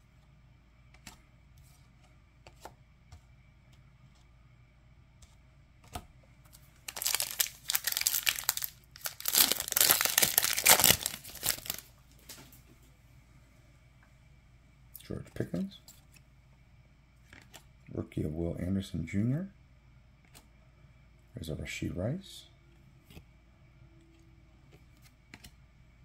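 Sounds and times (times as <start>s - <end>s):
soft clicks of cards handled: 0.8s - 4.3s, 20.2s - 20.5s, 24.0s - 25.6s
wrapper tearing and crinkling: 6.8s - 11.9s.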